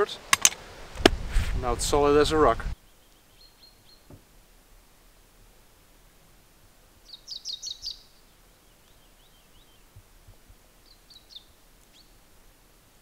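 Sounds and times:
quiet outdoor background noise: 0.0 - 13.0
songbird chirping: 2.7 - 12.6.

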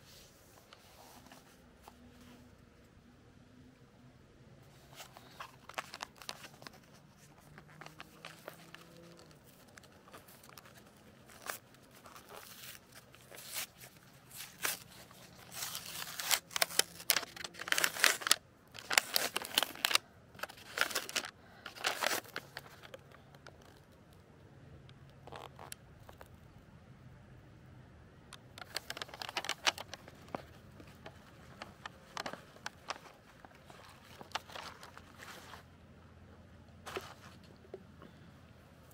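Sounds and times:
packaging crinkling and tearing: 4.9 - 23.9, 28.5 - 35.6.

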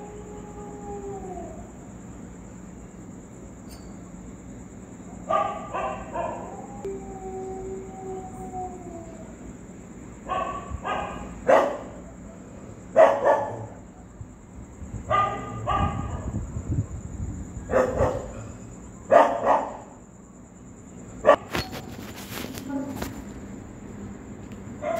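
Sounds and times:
dogs barking: 5.2 - 6.5, 10.2 - 14.0, 15.1 - 16.3, 17.7 - 20.0, 21.2 - 21.6.

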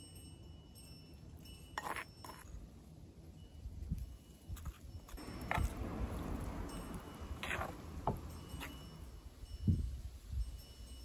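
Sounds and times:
utensils clinking on stoneware bowl: 1.1 - 2.8.

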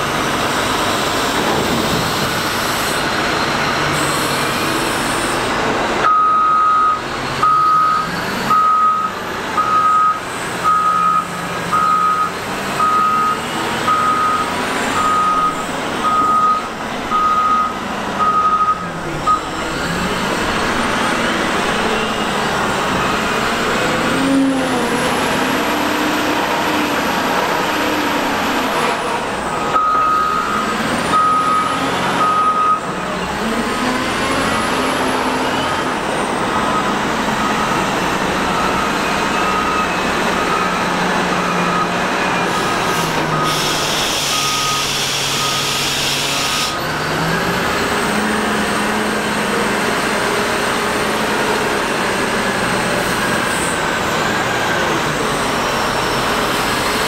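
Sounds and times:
wheel loader diesel engine: 0.0 - 57.0
reversing alarm beeping: 6.0 - 19.8, 29.7 - 32.9, 36.5 - 46.0
hiss of air: 43.0 - 46.8.

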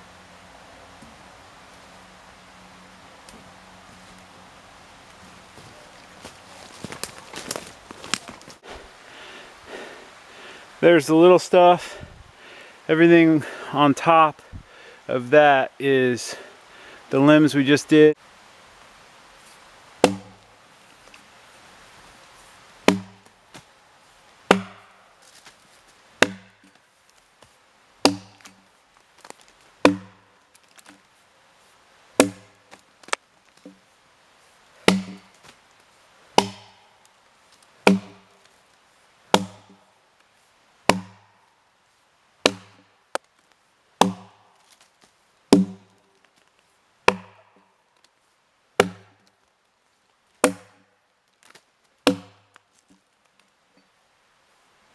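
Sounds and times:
axe chopping into log: 20.0 - 20.4, 22.8 - 23.6, 24.5 - 25.5, 26.2 - 26.8, 28.0 - 28.6, 29.3 - 30.2, 32.2 - 33.8, 34.8 - 35.4, 36.4 - 36.8, 37.8 - 38.3, 39.3 - 39.8, 40.9 - 41.2, 42.4 - 43.2, 44.0 - 44.8, 45.5 - 45.9, 47.1 - 47.5, 48.8 - 49.2, 50.4 - 50.9, 51.5 - 52.5.

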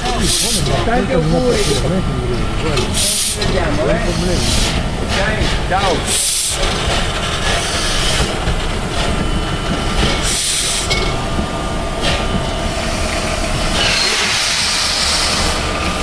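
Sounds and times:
steam locomotive rumble: 0.0 - 16.0
steam hissing: 2.8 - 8.4, 9.8 - 11.0, 12.0 - 16.0.

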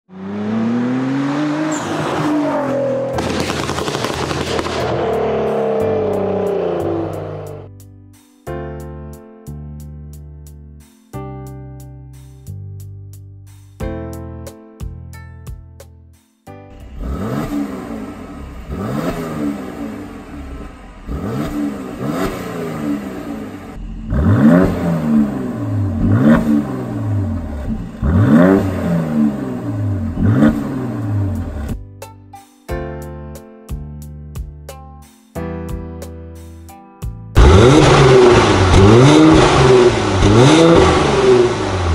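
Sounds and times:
car engine revving: 0.1 - 7.7, 16.8 - 31.8, 37.4 - 41.9
exhaust pops and crackles: 3.2 - 5.0.

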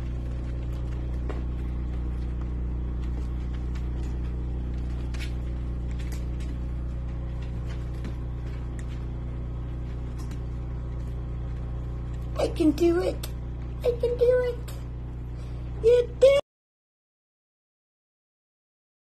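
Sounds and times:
claws ticking on wooden floor: 0.0 - 12.4
steady low hum: 0.0 - 16.4.

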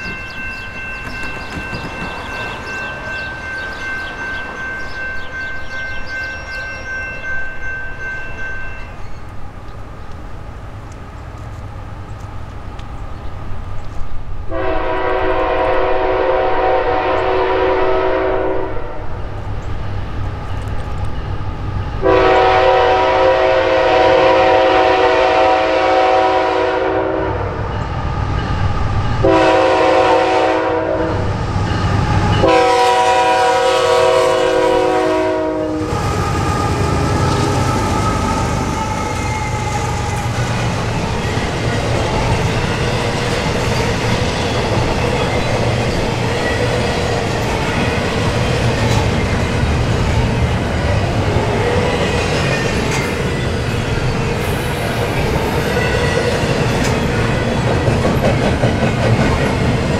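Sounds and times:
train rumbling past: 0.0 - 59.9
locomotive air horn blasts: 14.5 - 19.1, 22.0 - 27.6, 29.2 - 31.3, 32.4 - 39.7.

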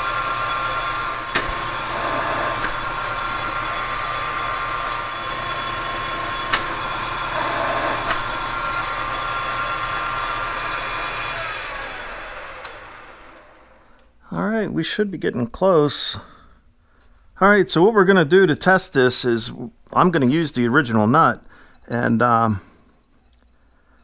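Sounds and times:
lathe running: 0.0 - 13.9
sharp clicks: 1.3 - 3.0, 6.4 - 8.6.

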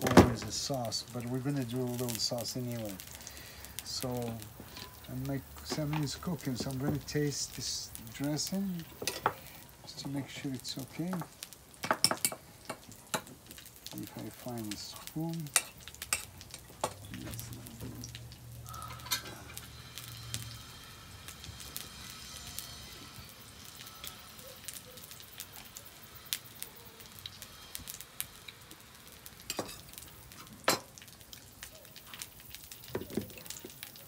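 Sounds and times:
fish sizzling in a pan: 0.0 - 34.0.

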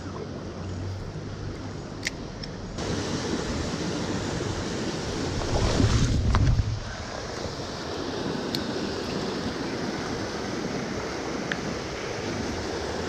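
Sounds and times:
stream running over rocks: 2.8 - 13.0.

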